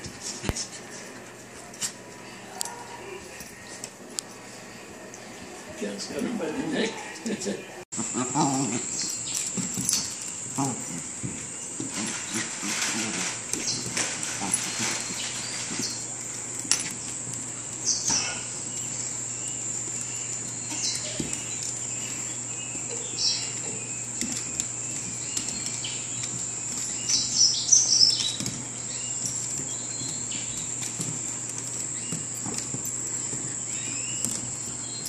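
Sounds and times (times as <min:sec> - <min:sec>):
paws scuffling on wood floor: 0:00.0 - 0:07.4, 0:08.0 - 0:35.0.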